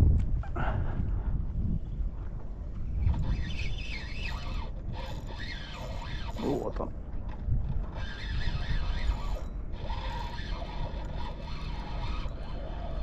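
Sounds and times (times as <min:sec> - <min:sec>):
wind rumble on microphone: 0:00.0 - 0:13.0
fishing reel ratchet winding: 0:03.1 - 0:06.8, 0:07.8 - 0:13.0.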